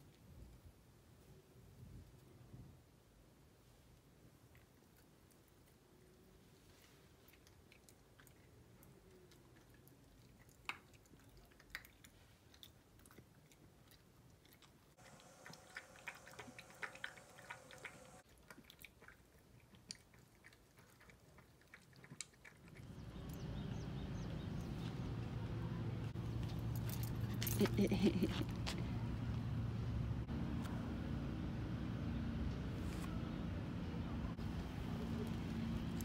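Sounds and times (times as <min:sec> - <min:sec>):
dog crunching dry kibble: 0:09.6 - 0:22.9
steady low rumble: 0:22.8 - 0:36.0.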